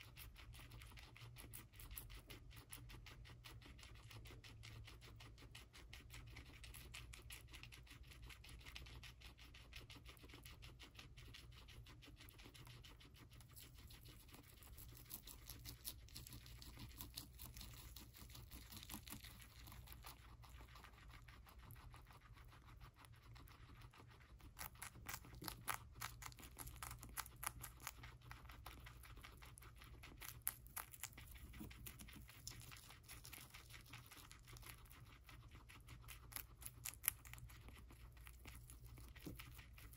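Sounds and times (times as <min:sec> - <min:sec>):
guinea pigs crunching celery: 0:00.0 - 0:39.9.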